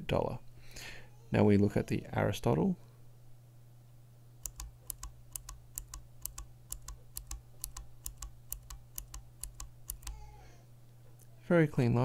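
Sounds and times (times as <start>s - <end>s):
mechanical keyboard switch clicking: 4.4s - 10.2s.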